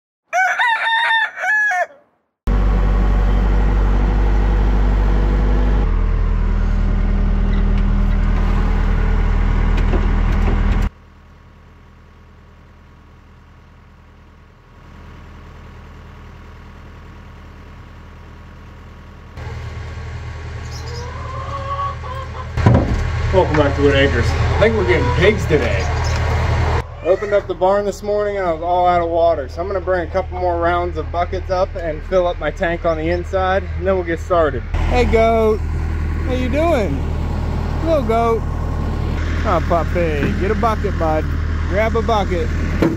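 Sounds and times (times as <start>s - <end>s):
rooster crowing: 0.3s - 2.1s, 20.6s - 22.6s
low rumble with hum: 2.5s - 42.9s.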